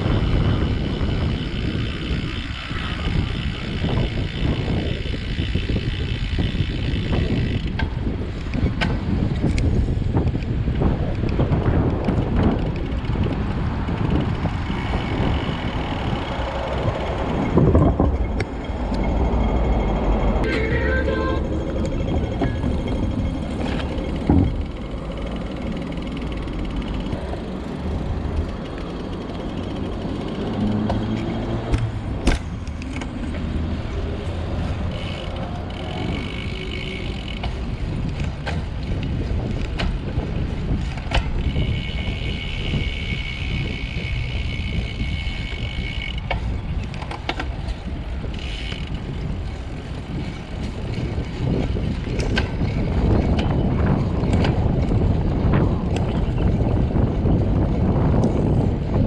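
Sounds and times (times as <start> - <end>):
road rumble: 0.0 - 59.0
wind: 0.0 - 59.0
high whine: 17.5 - 25.2.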